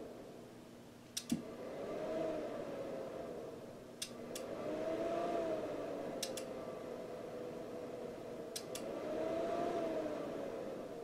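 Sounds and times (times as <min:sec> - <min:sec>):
sharp clicks: 0:01.1 - 0:01.4, 0:06.2 - 0:06.5, 0:08.5 - 0:08.9.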